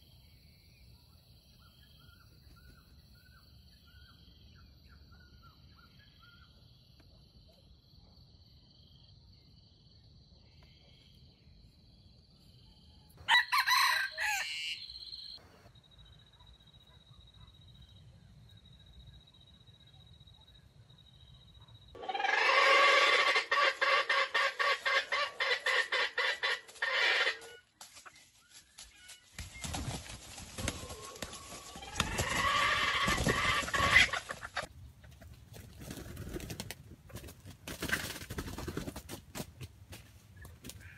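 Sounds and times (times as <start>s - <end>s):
rooster crowing: 13.2s - 15.1s.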